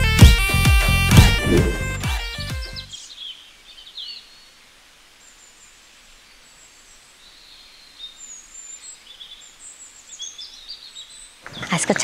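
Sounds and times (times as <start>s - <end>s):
small birds chirping: 2.6s - 12.0s
outdoor background noise: 2.7s - 12.0s.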